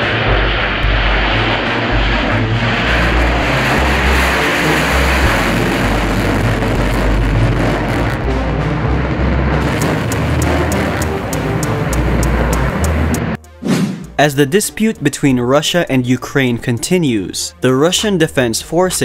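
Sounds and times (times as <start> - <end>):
jet engine roaring: 0.0 - 14.2.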